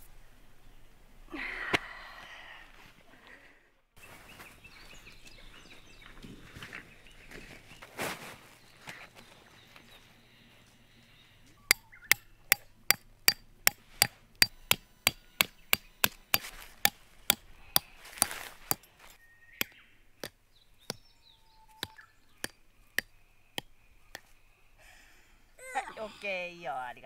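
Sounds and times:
hammer striking a tent peg: 0:11.7 - 0:18.9, 0:21.8 - 0:24.3.

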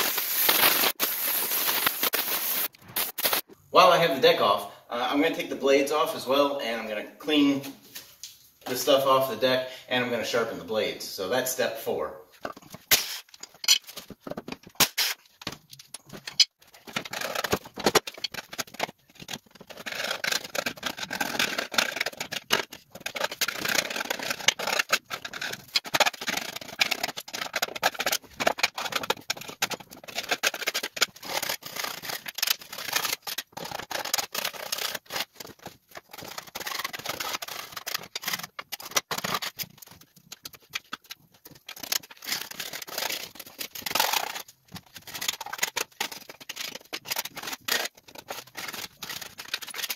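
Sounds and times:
scraper scratching steel deck: 0:12.4 - 0:49.9.

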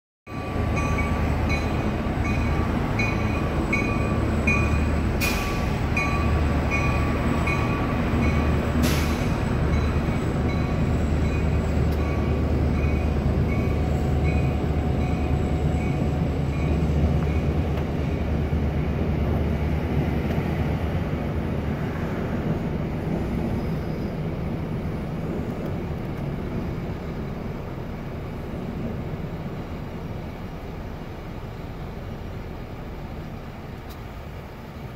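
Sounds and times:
regular clicking of train wheels: 0:00.3 - 0:19.4, 0:25.5 - 0:27.6, 0:32.7 - 0:34.9
train running on bridge: 0:00.3 - 0:34.9.

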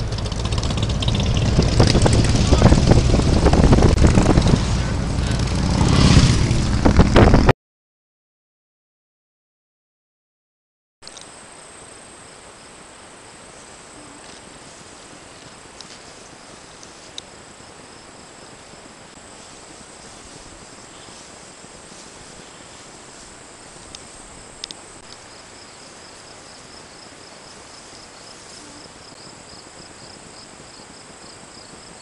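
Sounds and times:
insects buzzing: 0:11.0 - 0:32.0
rhythmic insect chirp: 0:11.1 - 0:32.0.

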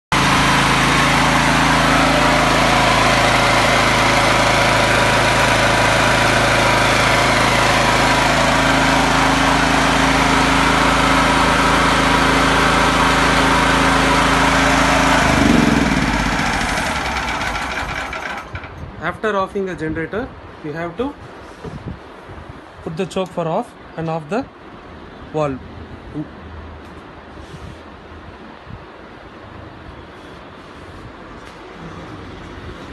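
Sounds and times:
generator engine winding down: 0:00.1 - 0:18.9
petrol generator running: 0:00.1 - 0:19.0.

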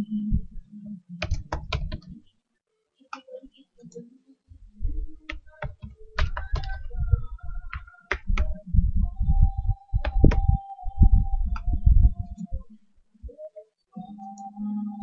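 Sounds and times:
typing on computer keyboard: 0:01.2 - 0:02.1, 0:05.3 - 0:08.6, 0:10.0 - 0:10.6.

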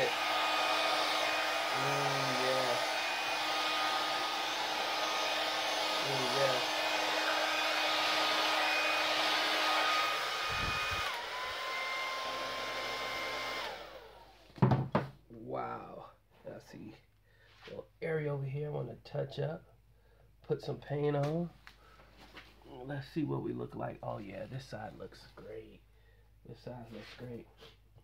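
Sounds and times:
hair dryer blowing with motor whine: 0:00.0 - 0:14.5.

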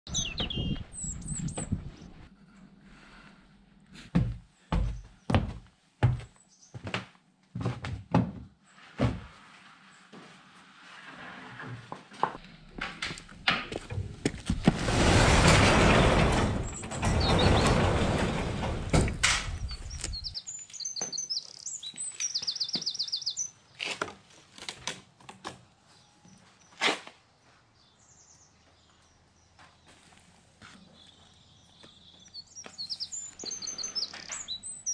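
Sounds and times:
birds chirping: 0:00.0 - 0:02.2, 0:16.3 - 0:23.8, 0:27.4 - 0:34.9
heavy door sliding: 0:12.8 - 0:20.4.

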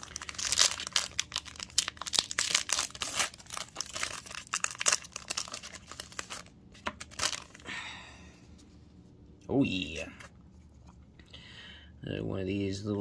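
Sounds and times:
trading cards handled: 0:00.0 - 0:07.6
foil wrapper crinkling: 0:00.0 - 0:07.7.

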